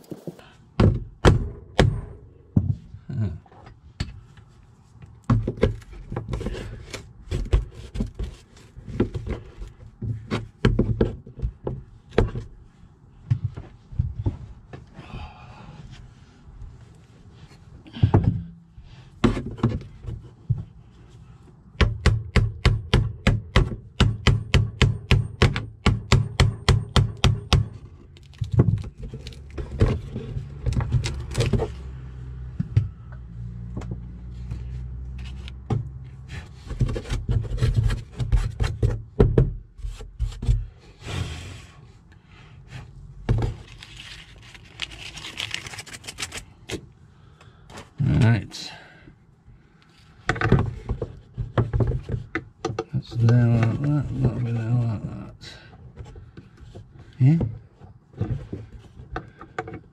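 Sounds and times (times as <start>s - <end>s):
rubbing and scraping on wood: 0.0s - 0.5s, 4.4s - 14.9s, 33.9s - 46.4s, 49.8s - 55.2s.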